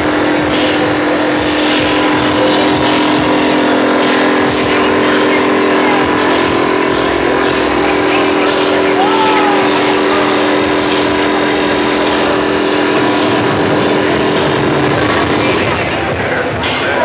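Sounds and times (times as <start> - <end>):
constant low hum: 0.0 - 16.9
many voices blending: 0.0 - 17.0.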